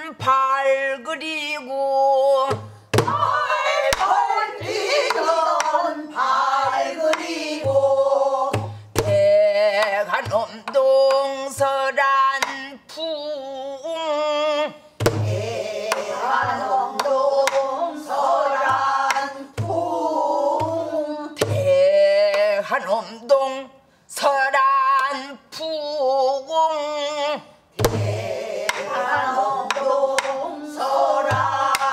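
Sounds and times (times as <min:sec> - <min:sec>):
person singing with vibrato: 0:00.0 - 0:31.9
deep drum thumps: 0:02.5 - 0:03.6, 0:15.0 - 0:16.7, 0:18.5 - 0:21.8, 0:27.8 - 0:28.5.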